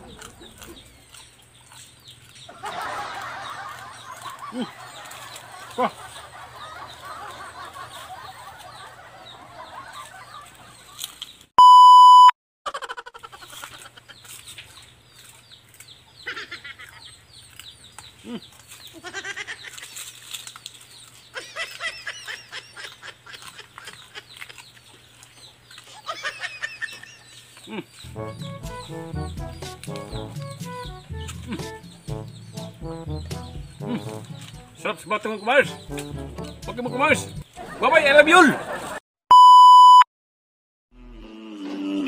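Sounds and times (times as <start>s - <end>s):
chickens clucking: 0.0s - 11.5s, 12.7s - 39.0s
birds chirping: 0.0s - 12.0s, 13.2s - 39.0s
loud electronic beep: 11.6s - 12.3s, 39.3s - 40.0s.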